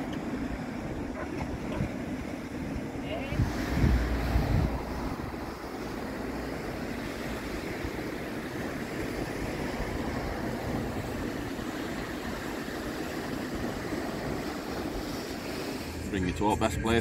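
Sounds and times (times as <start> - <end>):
surf breaking over rocks: 0.0 - 17.0
wind rushing: 3.0 - 7.9.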